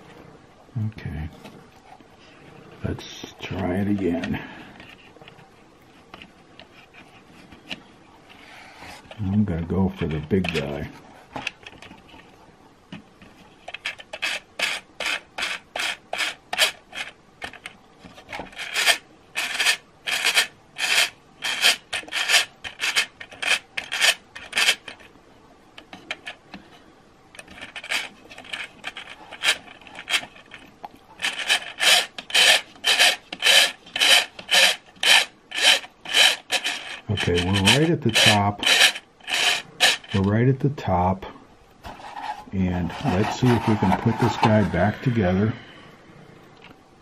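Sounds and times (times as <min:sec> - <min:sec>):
plastic gears scraping: 0:06.1 - 0:10.8, 0:13.5 - 0:25.1, 0:25.8 - 0:26.7, 0:27.4 - 0:40.4, 0:41.8 - 0:45.6.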